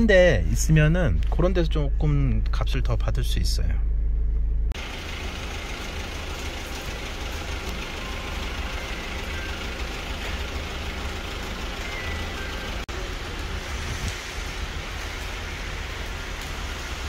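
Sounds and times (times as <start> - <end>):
vehicle engine idling: 0.0 - 17.0
constant hiss: 4.8 - 17.0.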